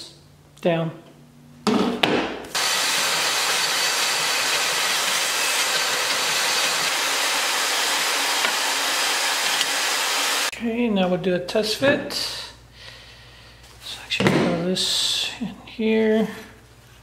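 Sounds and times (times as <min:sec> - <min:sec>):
bandsaw cutting metal: 0:02.5 - 0:10.5.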